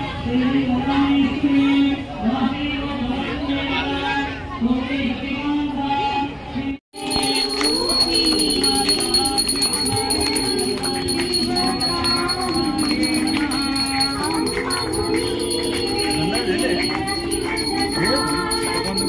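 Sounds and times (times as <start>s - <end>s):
devotional singing: 4.6s - 19.0s
jingling rattling percussion: 7.0s - 19.0s.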